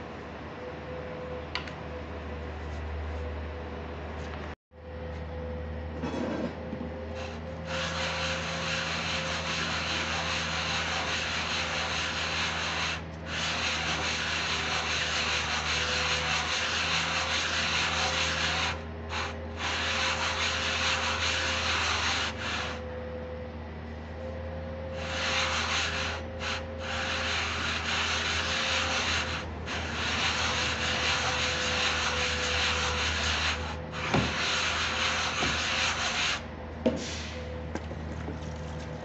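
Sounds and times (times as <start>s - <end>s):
gritty scraping of metal on abrasive: 7.2s - 22.8s, 24.9s - 36.4s.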